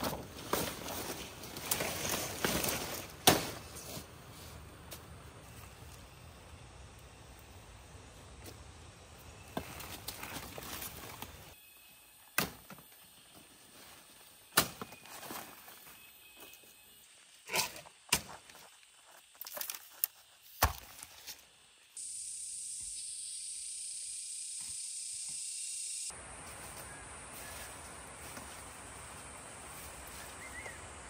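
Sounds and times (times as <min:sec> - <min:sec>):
footsteps in dry leaves: 0:00.0 - 0:04.6, 0:26.4 - 0:30.7
high-pitched insect buzz: 0:21.8 - 0:30.8.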